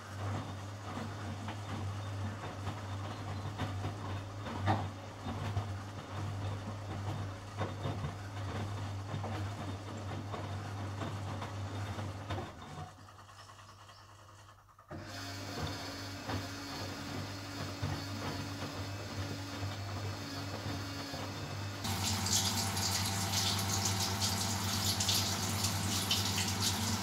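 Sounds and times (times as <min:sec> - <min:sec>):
washing machine drum sloshing: 0:21.8 - 0:27.0.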